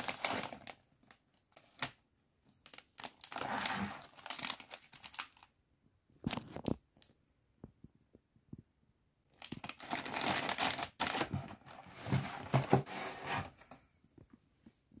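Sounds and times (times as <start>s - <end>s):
foil bags crinkling: 0.0s - 0.8s, 2.6s - 5.5s, 9.4s - 12.8s.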